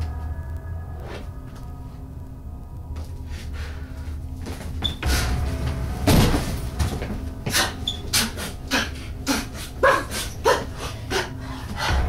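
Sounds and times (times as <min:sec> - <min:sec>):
grunts and panting cries: 0:07.4 - 0:12.0.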